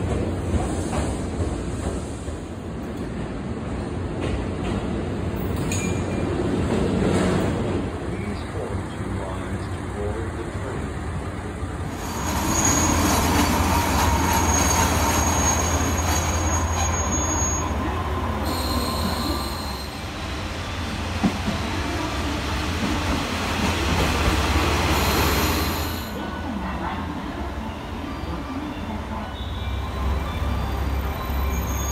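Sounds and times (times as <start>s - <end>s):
thin high wheel squeal: 12.0s - 20.0s, 29.7s - 31.9s.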